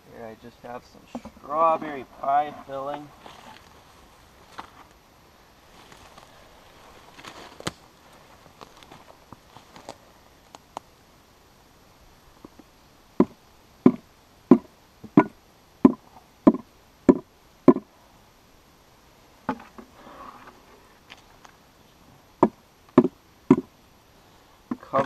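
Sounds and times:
short rustle: 1.2 - 5.0, 5.6 - 10.2
plastic tub knocking against log: 22.4 - 23.7.

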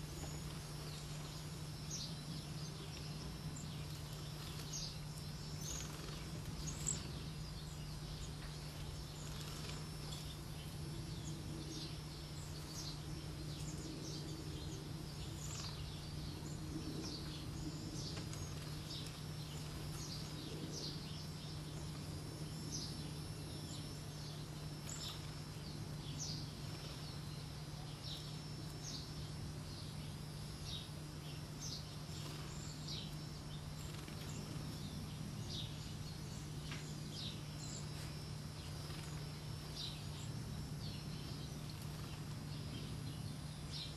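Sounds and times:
birds calling high-pitched: 0.0 - 22.0
steady low hum: 0.0 - 43.9.

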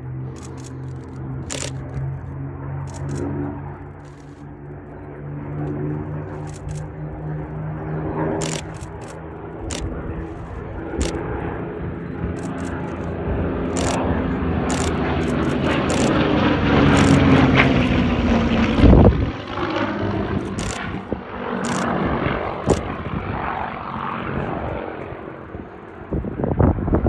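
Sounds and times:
propeller plane engine passing: 0.0 - 27.0
sharp clicks: 0.3 - 2.3, 2.9 - 4.5, 6.3 - 7.0, 8.4 - 11.3, 12.3 - 13.1, 13.7 - 16.3, 16.9 - 17.4, 20.4 - 21.0, 21.6 - 22.0, 22.7 - 22.9.

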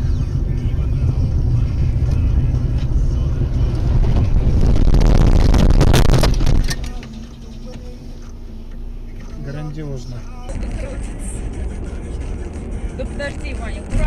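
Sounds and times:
car driving rumble: 0.0 - 14.0
rattling clatter and knocks: 6.0 - 7.9.

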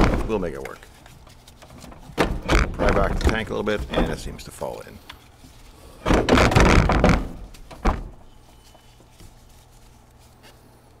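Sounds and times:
plastic case scraping and clunking: 1.7 - 4.6.

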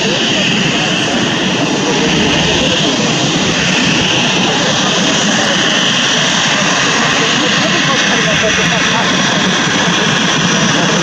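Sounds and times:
jet engines whining: 0.0 - 11.0.

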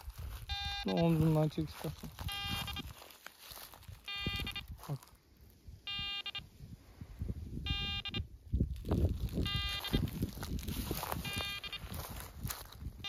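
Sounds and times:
footsteps in dry grass: 0.0 - 6.2, 8.6 - 13.0
buzzy electronic beep: 0.4 - 3.0, 4.0 - 4.8, 5.9 - 6.4, 7.7 - 8.3, 9.4 - 12.2.

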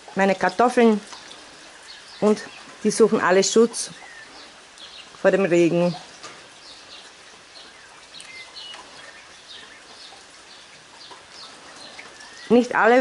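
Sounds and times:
light rain falling: 0.0 - 13.0
bird chirps: 0.4 - 13.0.

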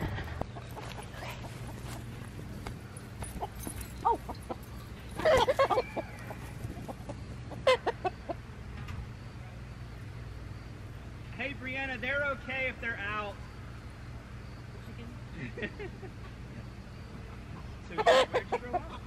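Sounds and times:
chickens clucking and squawking: 0.0 - 8.7, 17.3 - 19.0.

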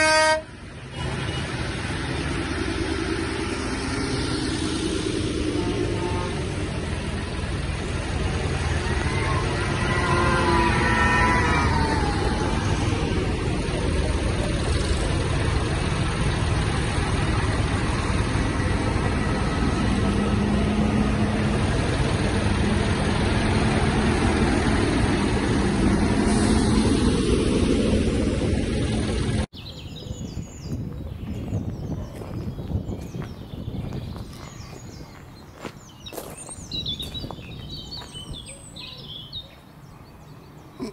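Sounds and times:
tractor diesel engines driving past: 0.0 - 40.9
quiet outdoor background: 26.3 - 40.9.

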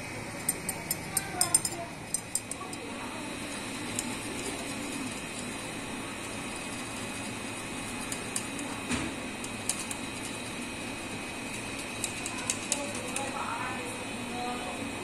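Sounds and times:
machine hum with high whine: 0.0 - 15.0.

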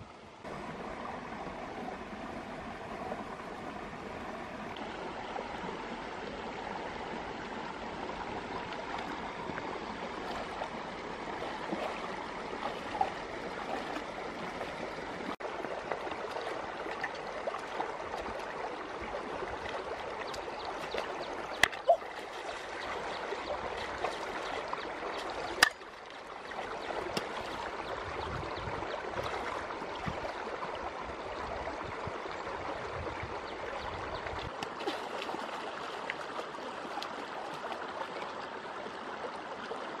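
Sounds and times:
stream running over stones: 0.0 - 40.0.

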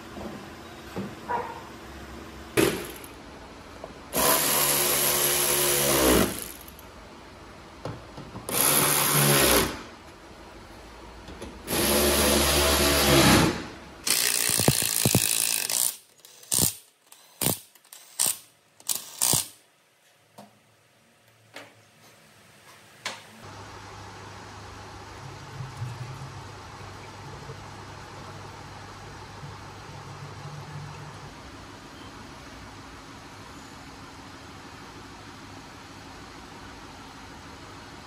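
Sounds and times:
impact wrench short bursts: 11.7 - 19.6.

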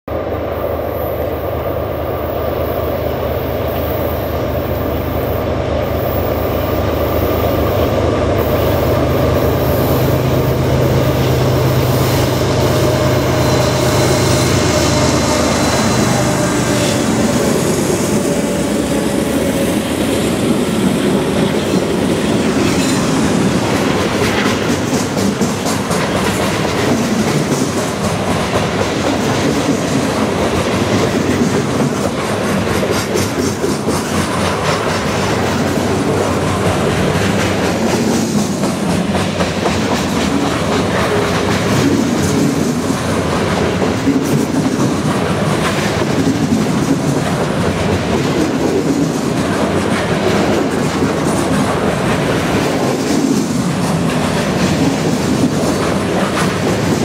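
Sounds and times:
diesel locomotives droning: 0.1 - 29.3.

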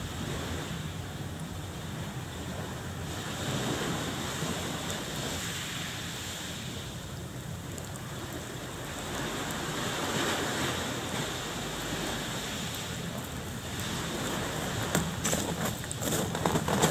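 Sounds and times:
surf washing on beach: 0.0 - 16.9.

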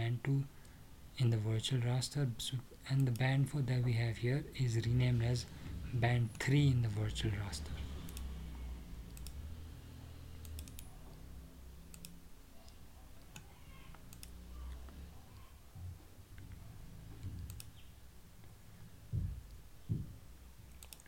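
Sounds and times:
faint low hum: 0.0 - 21.0
computer mouse clicks: 8.1 - 8.3, 9.1 - 9.4, 10.4 - 10.9, 11.9 - 15.0, 17.2 - 17.8, 20.7 - 21.0.

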